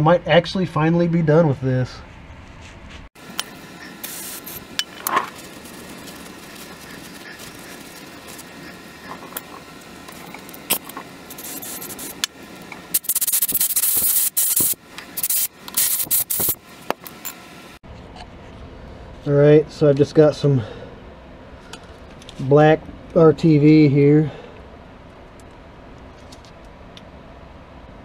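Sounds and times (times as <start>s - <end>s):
hissing and rubbing bursts: 3.2s - 17.3s.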